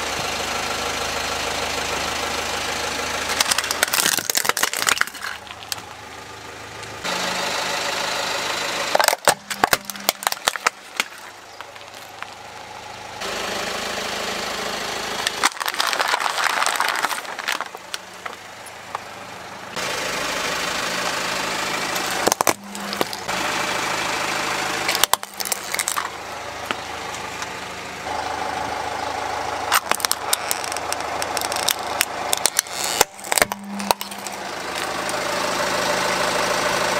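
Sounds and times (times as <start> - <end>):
car engine idling: 0.0 - 36.9
plastic toys cracking under tyre: 3.3 - 5.9, 8.9 - 12.7, 15.2 - 19.0, 21.9 - 23.3, 24.9 - 27.5, 29.7 - 35.2.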